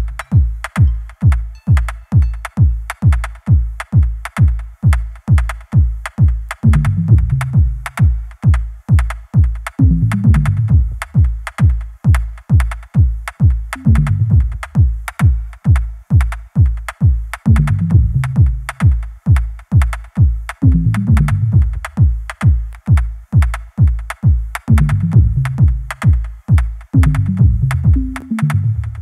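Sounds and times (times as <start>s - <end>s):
kick drum beat: 0.0s - 29.0s
low bass riff: 6.6s - 7.9s, 9.8s - 11.0s, 13.8s - 14.6s, 17.5s - 18.7s, 20.6s - 21.8s, 24.7s - 25.9s, 27.0s - 29.0s.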